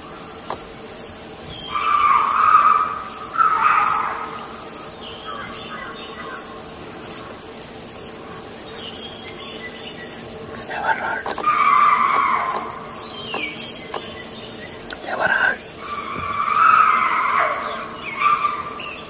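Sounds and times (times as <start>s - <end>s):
insects chirring: 0.0s - 19.0s
animal distress cry: 1.6s - 4.6s, 10.7s - 13.4s, 15.0s - 19.0s.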